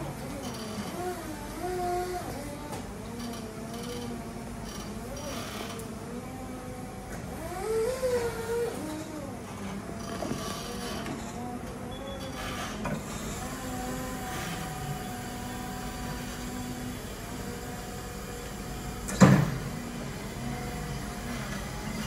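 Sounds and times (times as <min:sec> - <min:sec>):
electric truck motor hum: 0:00.0 - 0:22.0
loud clunk: 0:19.1 - 0:19.7.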